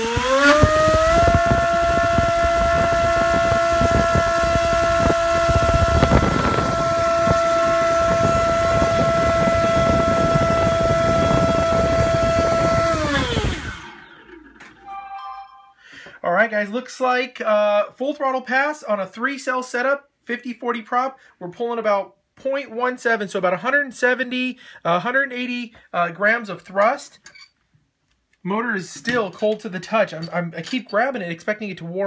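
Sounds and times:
propeller wash rushing: 0.0s - 14.0s
drone motor high-pitched whine: 0.0s - 15.4s.

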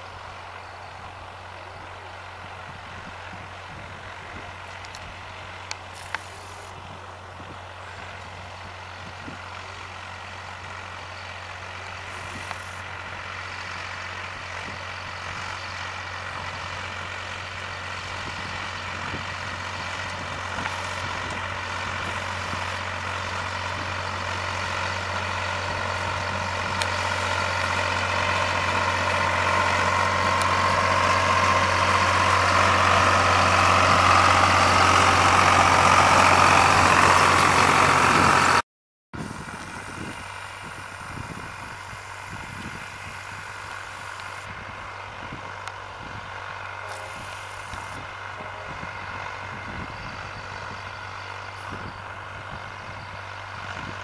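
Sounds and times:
tractor engine running under load: 0.0s - 38.6s, 39.2s - 54.0s
grass rake: 5.8s - 6.8s, 11.8s - 13.1s, 19.7s - 36.9s, 46.8s - 48.7s.

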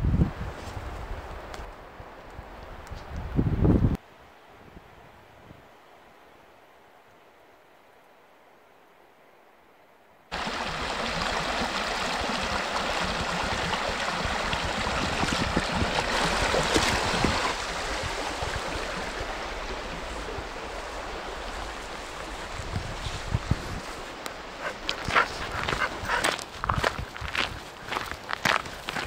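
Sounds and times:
stream rushing: 10.3s - 29.0s.

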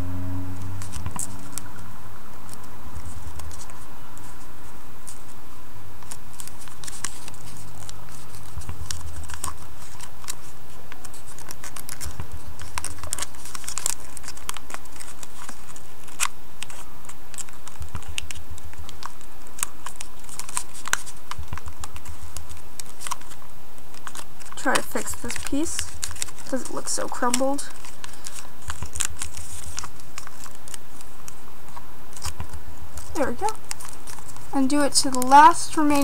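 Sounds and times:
short low rumbles: 0.0s - 2.2s
paper crinkling as folded: 2.4s - 5.4s, 6.0s - 36.0s.

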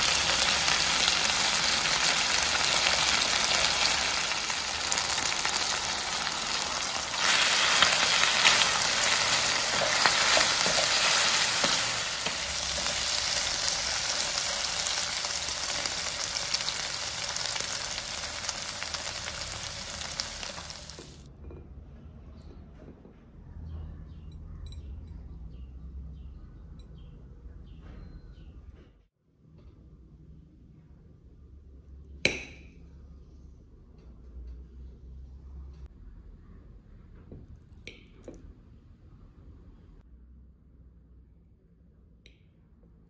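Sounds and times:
chicken sizzling in a frying pan: 0.0s - 21.3s.

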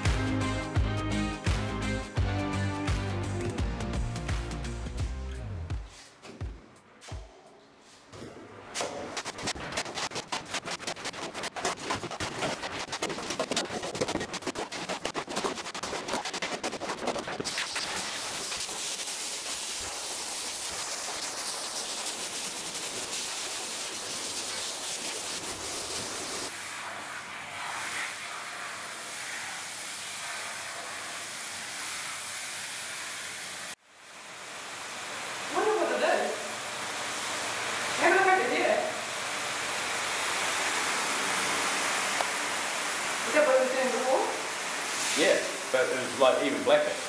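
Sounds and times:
hose spraying water on steel: 9.9s - 47.0s.

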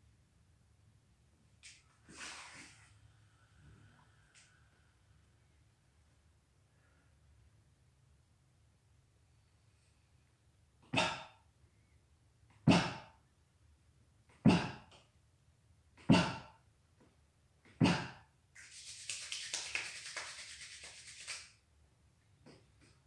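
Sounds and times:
rustling rub: 18.6s - 21.5s.

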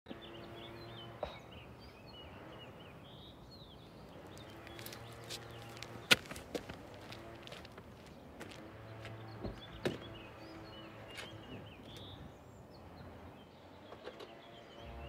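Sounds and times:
small birds chirping: 0.1s - 15.0s
footsteps: 4.2s - 10.2s.

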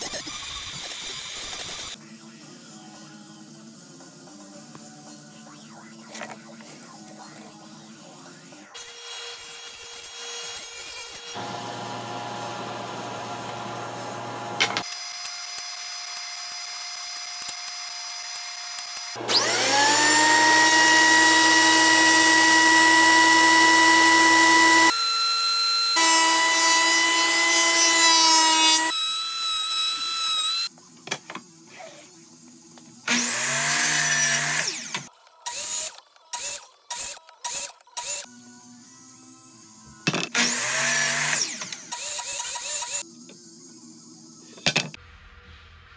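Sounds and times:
thickness planer: 8.8s - 14.9s, 18.3s - 30.6s
miter saw: 8.8s - 30.7s, 40.3s - 43.0s
table saw: 8.8s - 30.7s, 33.1s - 43.0s.

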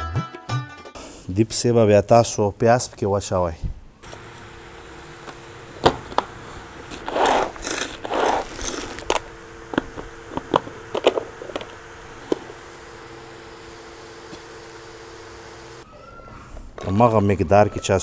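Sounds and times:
scraping rustles: 6.2s - 12.5s.

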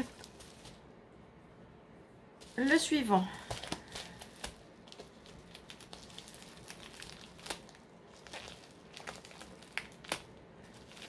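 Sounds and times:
plastic pouch crinkling: 0.0s - 0.8s, 2.4s - 11.0s.

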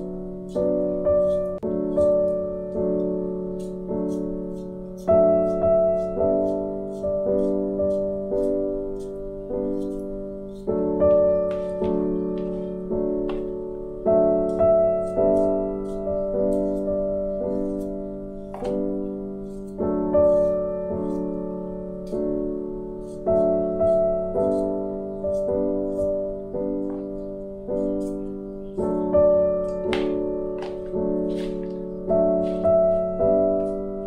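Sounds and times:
slow piano chords: 0.0s - 34.0s.

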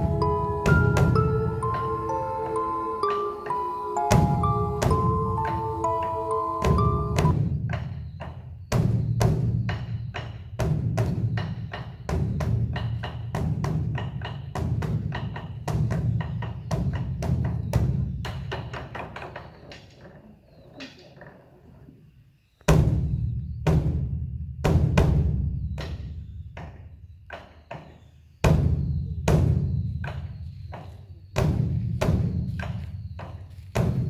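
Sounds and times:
large drum beaten with sticks: 0.0s - 2.2s, 4.0s - 19.0s, 22.7s - 26.8s, 28.4s - 30.3s, 31.3s - 34.0s.

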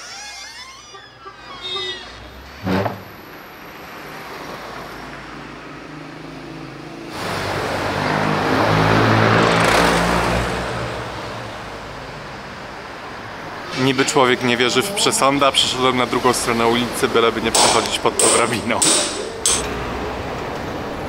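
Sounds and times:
street traffic hum: 0.0s - 21.0s
car passing close by: 3.6s - 12.5s.

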